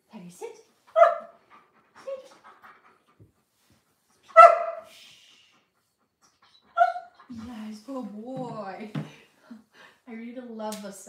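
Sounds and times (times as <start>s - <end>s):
dog barking: 1.0s - 1.4s, 4.3s - 4.9s, 6.8s - 7.1s.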